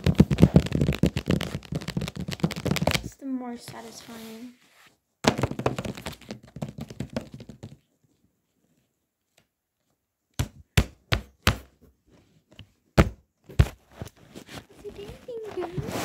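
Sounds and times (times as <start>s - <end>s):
knocks and taps on hard surface: 5.2s - 7.8s.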